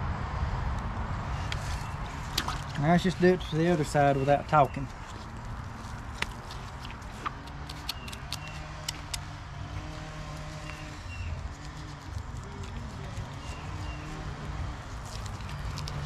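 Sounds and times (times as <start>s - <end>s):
engine humming: 0.0s - 16.0s
sharp clicks and taps: 6.2s - 9.2s.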